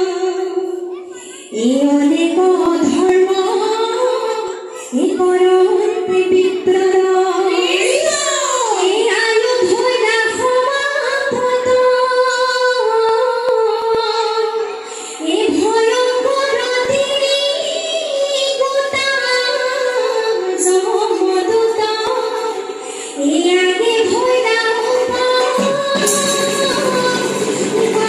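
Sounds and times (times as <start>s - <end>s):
women singing unaccompanied: 1.5s - 28.0s.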